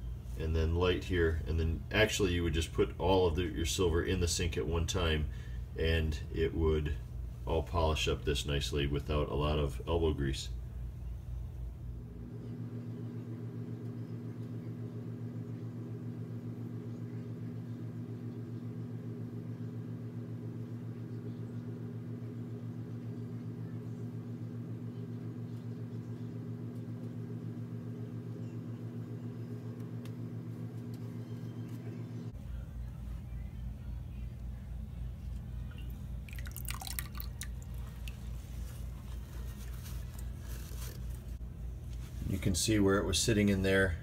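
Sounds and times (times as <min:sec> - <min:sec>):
machine humming: 0:10.6 - 0:44.0.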